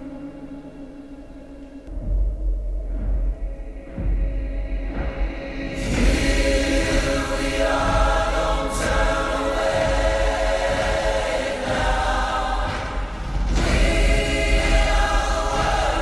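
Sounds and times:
choir singing held notes: 4.0 - 16.0.

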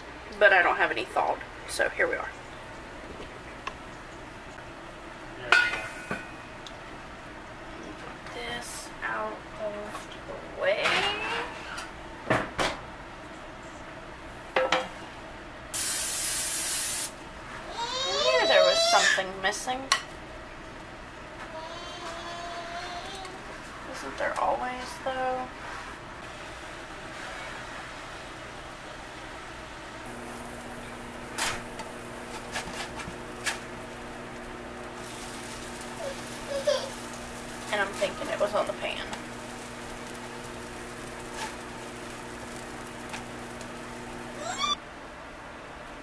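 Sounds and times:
cakes sizzling on griddle: 15.8 - 17.2, 30.1 - 44.8.

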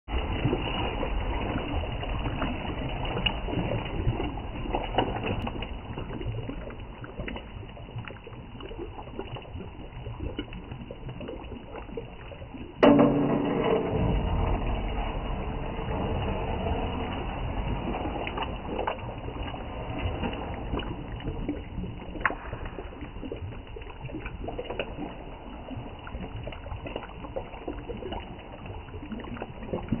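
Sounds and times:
curry bubbling in a pot: 0.1 - 30.0
low rumble: 12.8 - 30.0.

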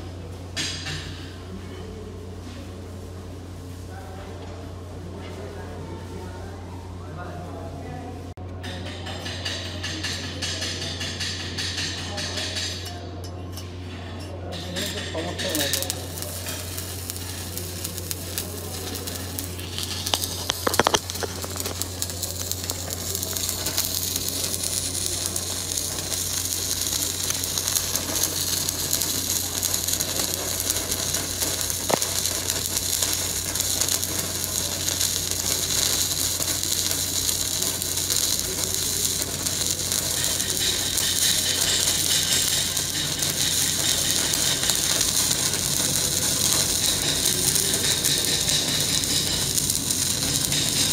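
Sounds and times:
welding arc crackling: 14.5 - 50.9.

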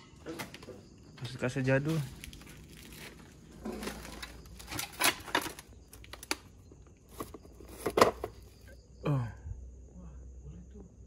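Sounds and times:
plastic cassettes scraping and clicking: 2.2 - 8.4.

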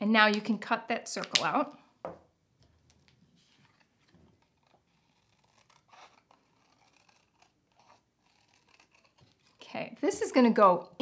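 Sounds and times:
scissors snipping paper: 4.4 - 9.8.

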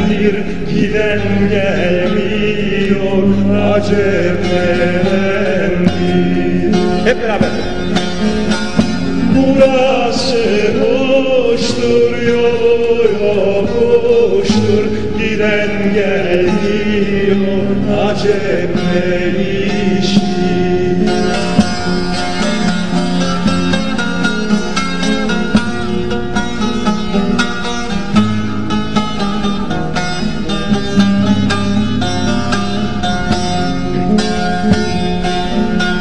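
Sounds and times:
man singing ornamented melody: 0.0 - 22.1
plucked lute strings: 0.0 - 36.0.

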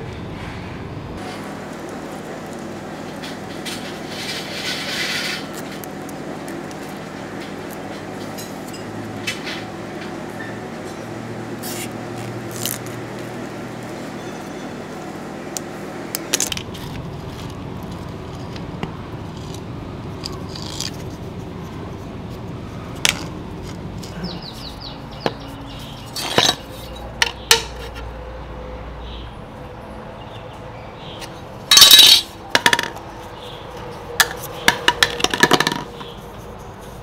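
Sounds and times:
tools clicking and clacking: 26.2 - 28.0, 31.7 - 33.1.

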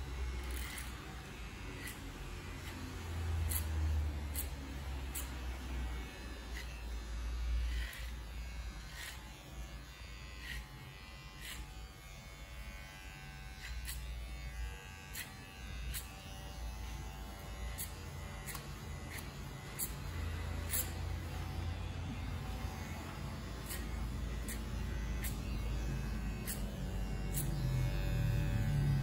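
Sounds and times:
electric hair clipper buzzing: 0.0 - 29.0.

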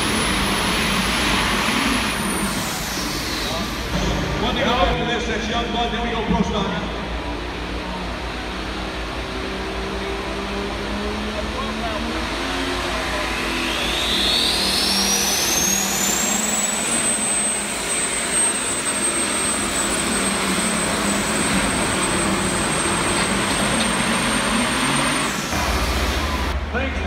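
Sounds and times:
high whine: 0.0 - 7.4, 12.8 - 27.0
tractor engine running hard: 0.0 - 27.0.

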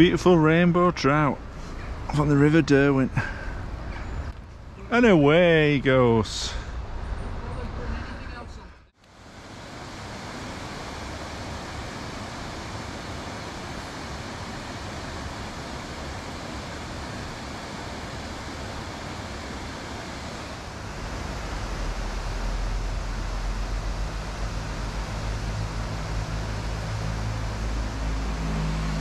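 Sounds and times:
river water rushing: 9.1 - 29.0
low rumble: 20.8 - 29.0.

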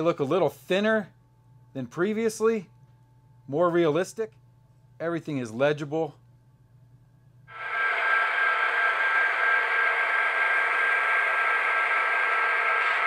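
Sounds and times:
model train diesel engine sound: 7.5 - 13.0.

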